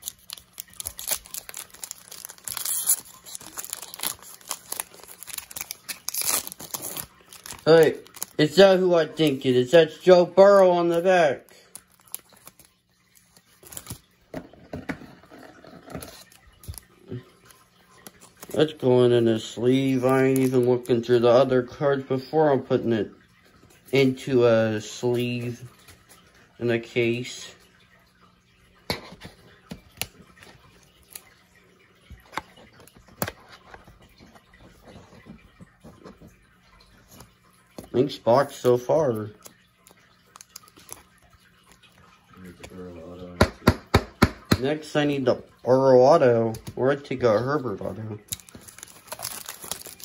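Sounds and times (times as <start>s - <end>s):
card clicking and rustling: 0.0s - 8.4s, 11.7s - 14.0s, 48.2s - 50.0s.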